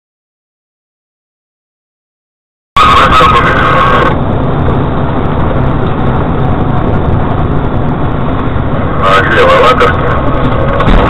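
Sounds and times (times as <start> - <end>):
vehicle engine and road rumble: 2.8 - 11.0.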